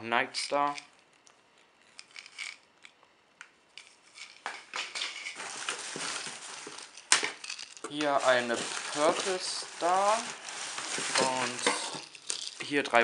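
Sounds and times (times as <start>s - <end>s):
paper packing rustling: 4.2s - 13.0s.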